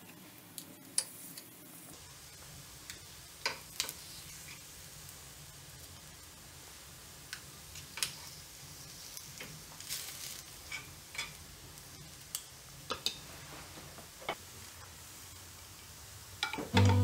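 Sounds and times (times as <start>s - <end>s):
low steady hum: 16.6s - 17.0s.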